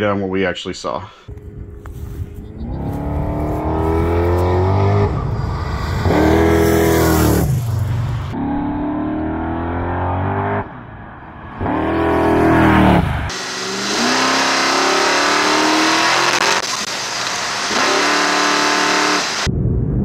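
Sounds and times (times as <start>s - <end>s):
engine revving at full throttle: 2.6s - 7.6s, 11.6s - 19.5s
turbo hissing rush: 13.3s - 19.5s.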